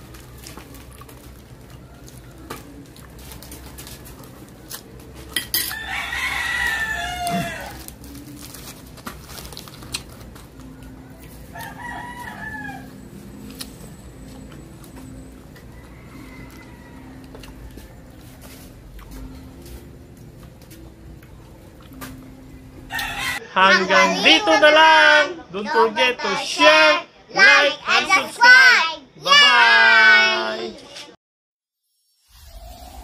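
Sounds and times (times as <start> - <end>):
rooster crowing: 5.6 - 7.9, 11.0 - 13.2, 15.6 - 18.7, 22.9 - 23.5.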